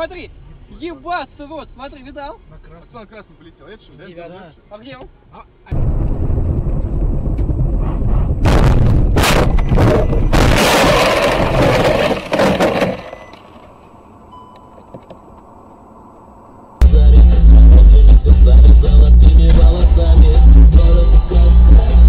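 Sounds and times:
rushing and rumbling: 5.7 - 13.3
low hum: 5.7 - 22.0
car crash bangs: 8.4 - 13.4.

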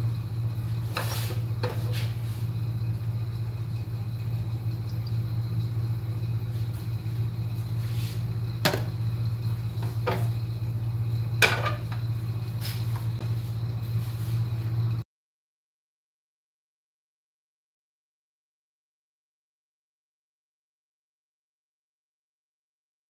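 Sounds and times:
metal pot knocking on stove: 8.6 - 9.0, 11.4 - 12.0.

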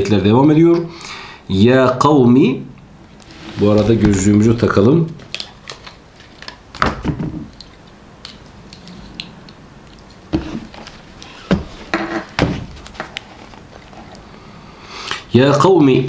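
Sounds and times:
book being opened: 3.2 - 4.3.

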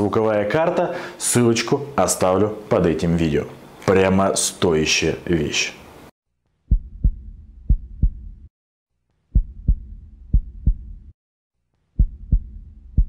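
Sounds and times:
low heartbeat-like thumps: 6.7 - 8.5, 9.3 - 11.2, 12.0 - 13.0
low hum: 12.0 - 13.0.

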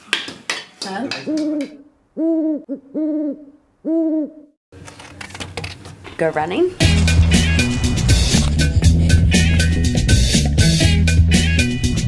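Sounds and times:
owl-like hooting: 1.2 - 4.6.

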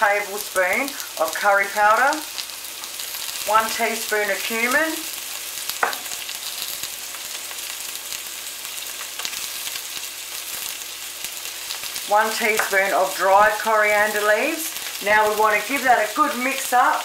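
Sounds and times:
onions sizzling in a frying pan: 0.0 - 17.0.

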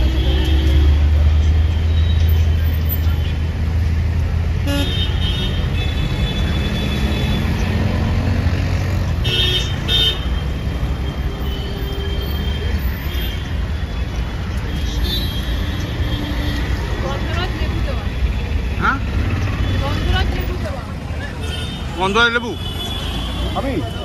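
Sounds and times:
traffic engines rumbling: 0.0 - 24.0
vehicle horns honking: 4.6 - 7.6, 9.2 - 10.5, 21.4 - 24.0.

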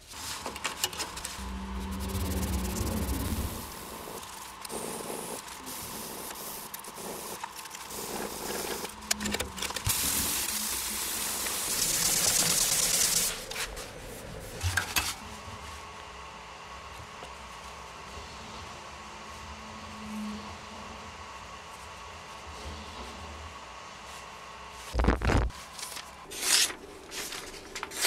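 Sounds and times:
sandpaper rubbing on wood: 11.2 - 13.5.

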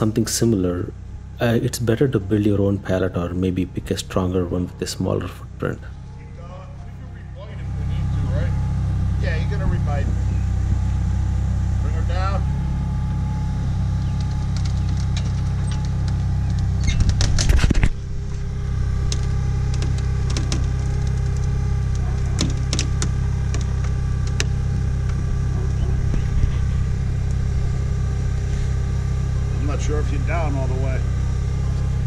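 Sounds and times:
forklift engine idling: 0.0 - 32.0
metallic clanking and rattling: 13.2 - 30.4.

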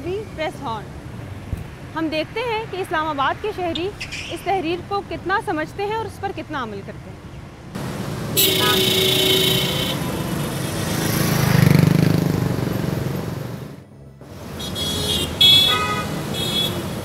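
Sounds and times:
car horns honking: 8.3 - 10.8, 14.5 - 17.0.

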